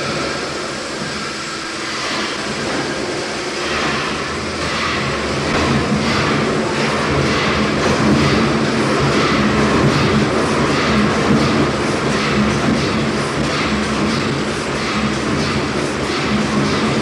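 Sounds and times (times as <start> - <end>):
steam winding engine running: 0.0 - 17.0.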